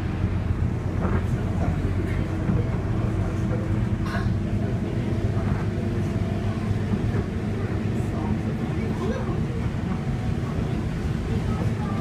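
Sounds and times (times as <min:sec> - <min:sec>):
bus diesel engine running: 0:00.0 - 0:12.0.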